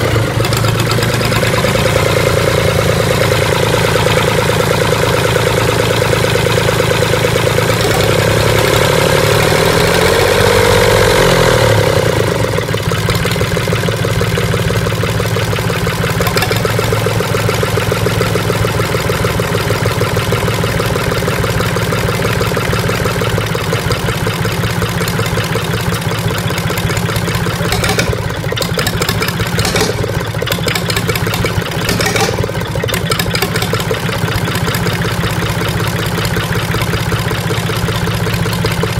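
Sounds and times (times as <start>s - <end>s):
diesel engine running: 0.0s - 38.9s
sharp engine knocks: 27.5s - 34.6s.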